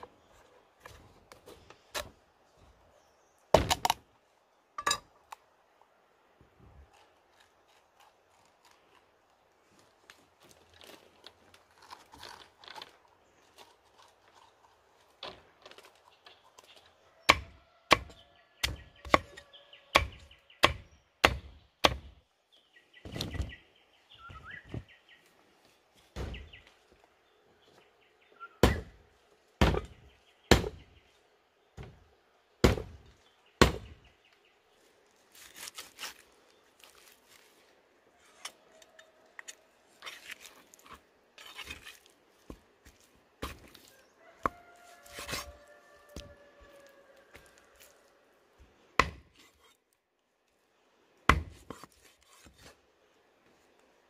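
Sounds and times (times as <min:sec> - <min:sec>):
knife scraping: 0:38.2 - 0:42.2, 0:44.8 - 0:45.7, 0:49.3 - 0:49.9, 0:51.6 - 0:52.8.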